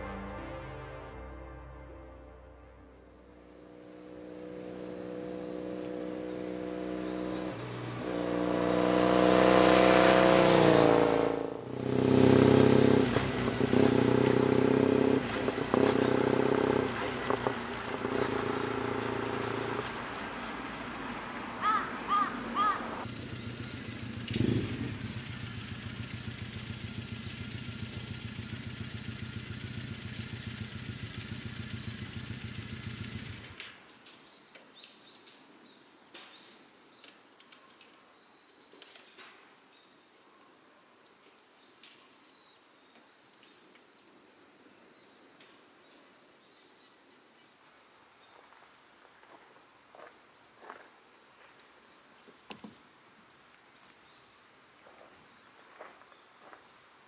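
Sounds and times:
motorcycle engine accelerating: 3.0 - 33.7
motorcycle engine idling: 3.3 - 8.1, 11.6 - 20.7, 21.6 - 33.6.

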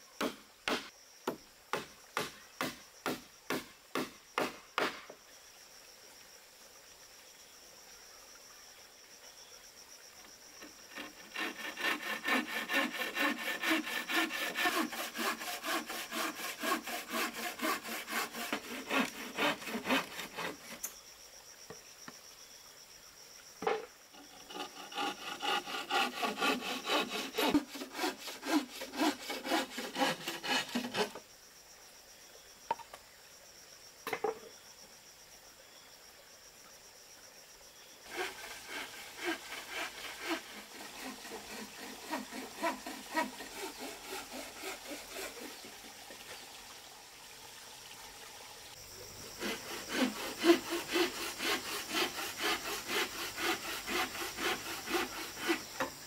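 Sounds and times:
insects chirring: 0.0 - 56.0
hand saw cutting wood: 10.6 - 20.9, 24.1 - 31.2, 38.1 - 45.9, 49.3 - 56.0.

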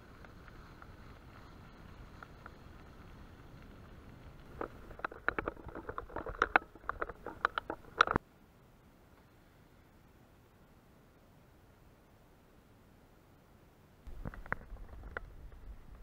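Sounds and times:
sharp irregular clicks and knocks: 4.3 - 8.2, 14.1 - 16.0.

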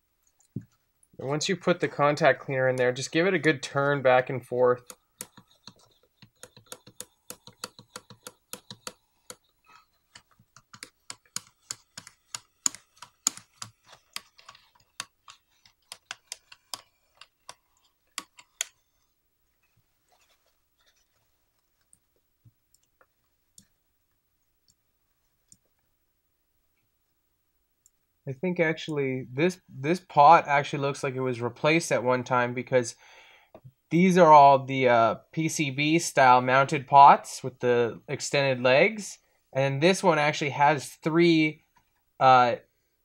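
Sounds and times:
potentiometers clicking: 3.9 - 18.8.

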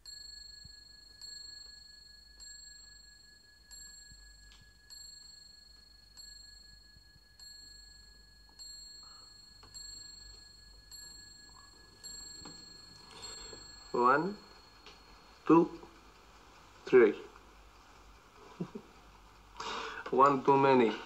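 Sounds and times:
faint bell ding: 0.0 - 16.1.

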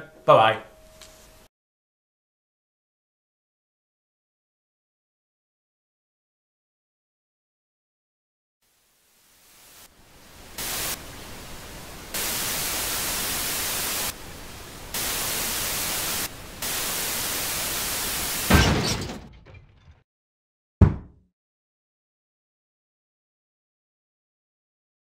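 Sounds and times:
television static hiss: 8.7 - 18.5.

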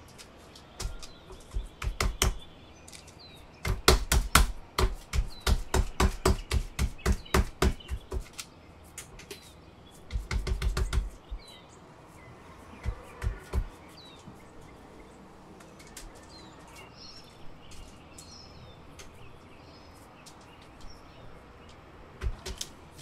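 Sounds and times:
hands patting dough: 3.6 - 11.5.

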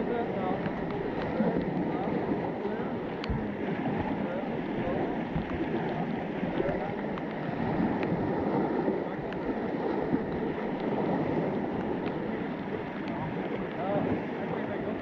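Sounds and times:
water rushing over rocks: 0.0 - 15.0
faint ticks: 11.7 - 13.8.

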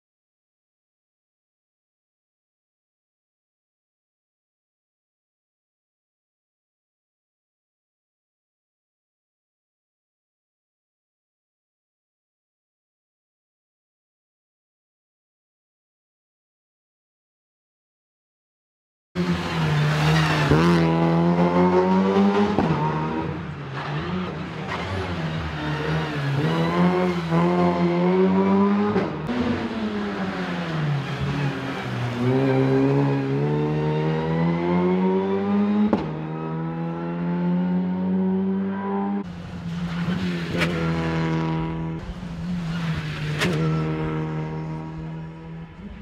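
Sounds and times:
rally car engine revving: 19.2 - 46.0.

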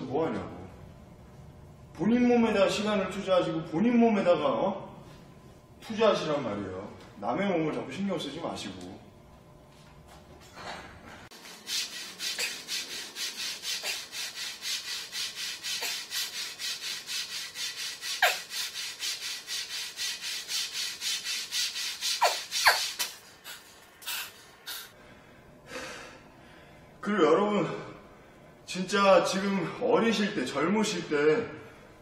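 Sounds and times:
raspy hissing strokes: 11.3 - 25.0.

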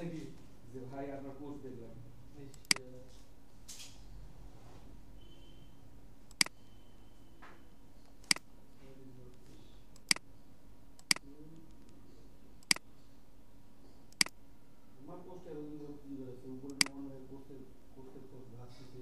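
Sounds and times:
faint steady hum: 0.0 - 19.0
computer mouse clicking: 6.3 - 6.6, 8.1 - 8.4, 9.9 - 10.2, 11.0 - 12.0, 14.1 - 14.4, 16.6 - 17.0.

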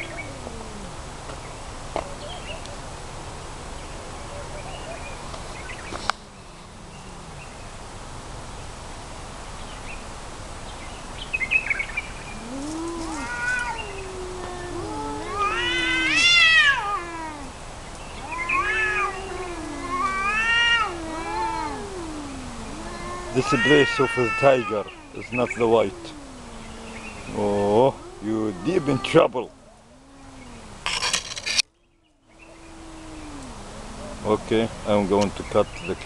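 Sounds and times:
cats caterwauling: 0.0 - 1.3, 5.9 - 7.9, 12.2 - 35.6.

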